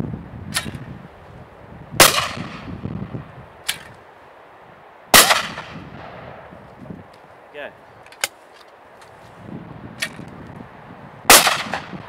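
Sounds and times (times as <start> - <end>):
sharp crack with ringing tail: 2.0 - 2.7, 5.1 - 6.4, 11.3 - 12.0
shotgun shot: 2.0 - 2.7, 5.2 - 5.8, 11.3 - 11.9.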